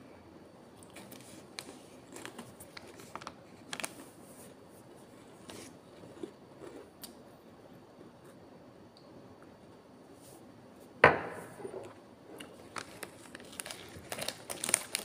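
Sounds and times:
plastic packet crackling: 1.0 - 4.1, 12.4 - 15.0.

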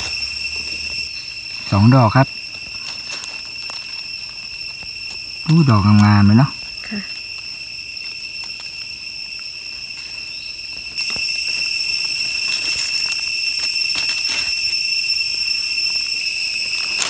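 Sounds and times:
leaf litter rustling: 0.0 - 5.9, 9.7 - 14.9
insects droning: 0.0 - 17.0.

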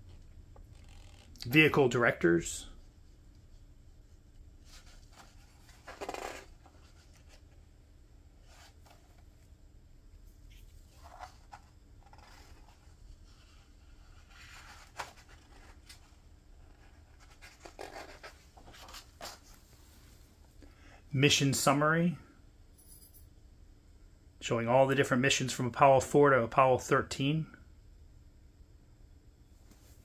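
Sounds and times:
book pages turning: 4.6 - 7.6, 8.4 - 9.5, 10.5 - 19.6.

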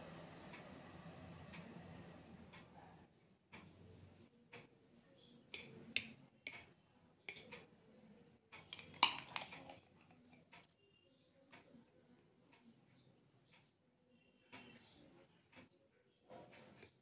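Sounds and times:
spoon clinking against glass cups: 8.6 - 10.4.

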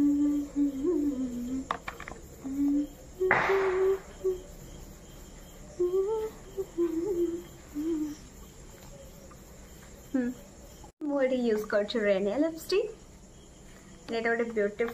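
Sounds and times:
woman humming: 0.0 - 4.6, 5.7 - 8.5, 10.1 - 10.4.

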